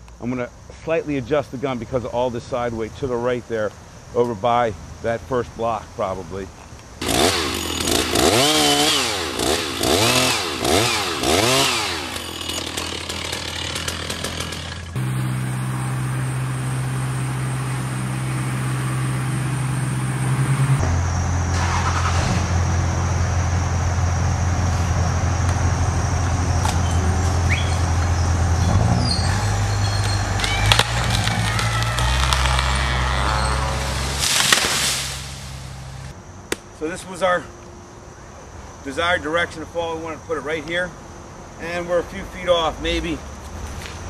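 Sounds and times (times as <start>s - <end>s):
chainsaw cutting wood: 7.0s - 20.8s, 28.7s - 36.1s.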